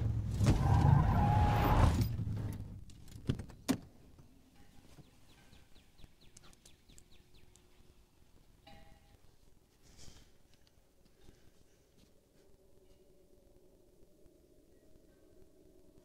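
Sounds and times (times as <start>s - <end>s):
vehicle rumble from inside cabin: 0.0s - 3.0s.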